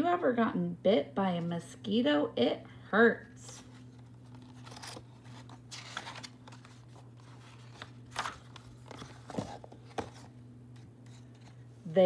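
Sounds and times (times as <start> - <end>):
book pages rustling: 3.5 - 11.7.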